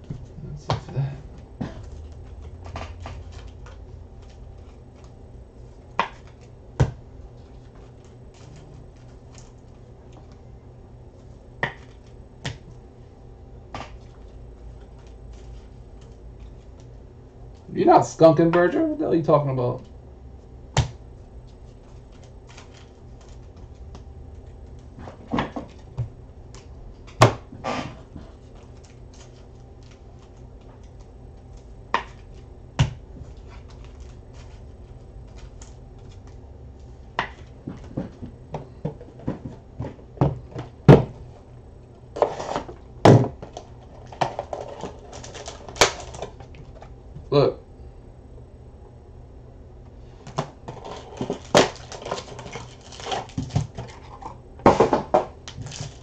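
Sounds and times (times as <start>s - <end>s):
low hum: 19.0s - 53.3s
cardboard boxes clicking and knocking: 37.2s - 41.2s, 50.3s - 56.0s.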